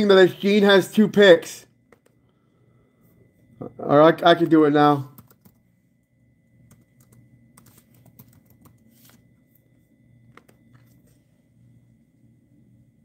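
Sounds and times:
laptop keyboard typing: 0:01.9 - 0:02.2, 0:05.0 - 0:05.7, 0:06.5 - 0:11.0.

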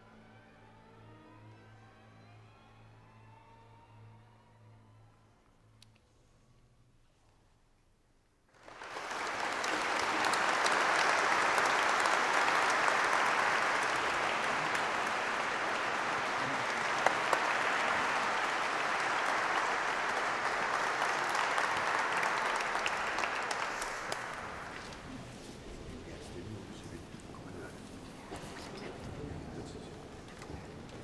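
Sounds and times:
audience applauding: 0:08.5 - 0:25.3.

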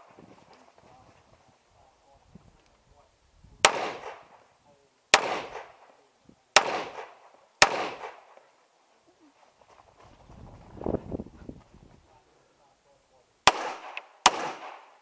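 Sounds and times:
pistol shots with echo: 0:03.6 - 0:04.4, 0:05.1 - 0:08.4, 0:13.4 - 0:15.0.

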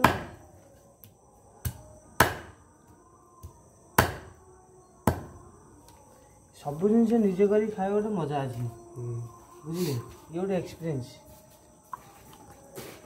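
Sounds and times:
blade chopping meat on wood: 0:01.6 - 0:02.5.

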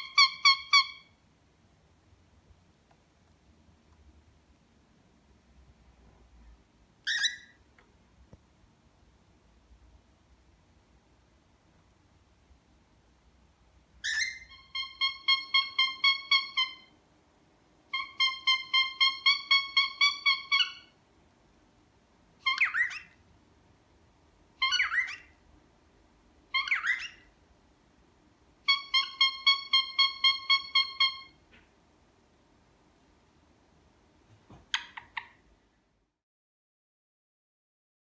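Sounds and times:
cockatiel squeaky calls: 0:00.0 - 0:01.2, 0:07.0 - 0:07.6, 0:14.0 - 0:16.9, 0:17.9 - 0:21.0, 0:22.4 - 0:23.2, 0:24.6 - 0:25.4, 0:26.5 - 0:27.3, 0:28.6 - 0:31.4, 0:34.7 - 0:35.4.

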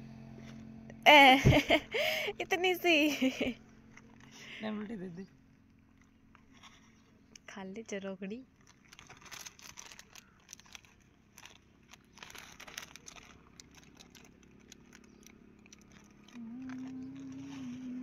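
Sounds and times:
loud steady hum: 0:00.0 - 0:05.4, 0:15.0 - 0:18.0
plastic packet crinkling: 0:08.4 - 0:18.0
snack crunching: 0:08.5 - 0:18.0.

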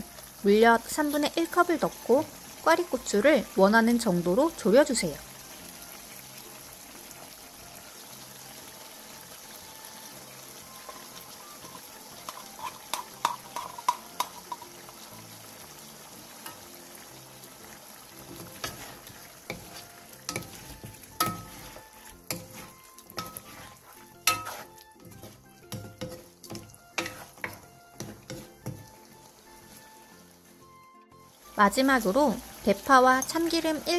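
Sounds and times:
sauce sizzling in frying pan: 0:00.0 - 0:33.9
wooden spatulas knocking pan: 0:12.3 - 0:14.6, 0:24.2 - 0:28.8.

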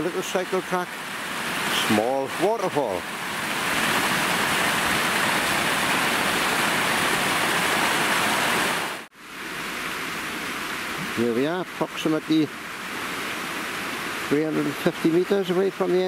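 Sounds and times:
small waterfall splashing: 0:00.0 - 0:16.0
faint steady hiss: 0:09.1 - 0:16.0.

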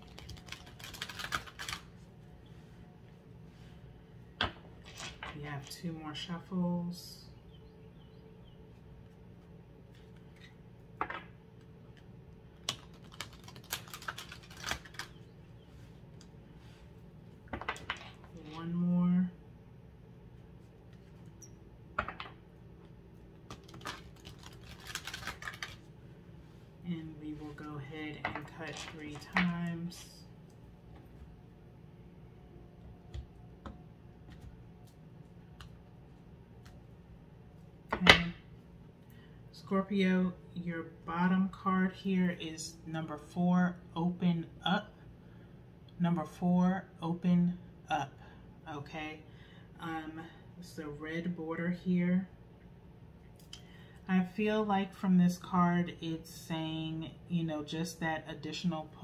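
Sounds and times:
cards being shuffled: 0:00.0 - 0:02.1, 0:12.6 - 0:15.2, 0:23.5 - 0:25.9.

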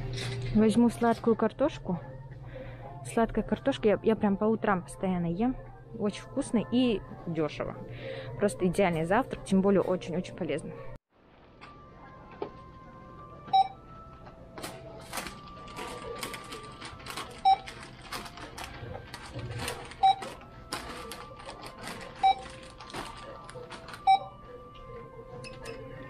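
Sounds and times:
barcode scanner beeping: 0:13.5 - 0:13.8, 0:16.0 - 0:17.9, 0:19.7 - 0:20.4, 0:22.0 - 0:24.4
rustling and clicking of items: 0:13.5 - 0:24.3.

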